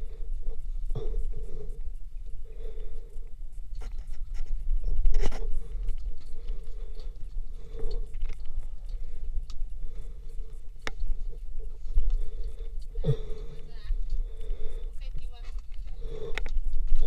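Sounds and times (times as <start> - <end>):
camera jostling rumble: 3.8 - 6.6.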